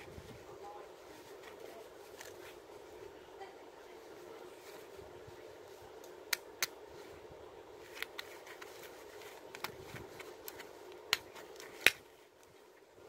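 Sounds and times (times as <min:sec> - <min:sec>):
multitool metallic clicks and snaps: 0:06.0 - 0:06.8.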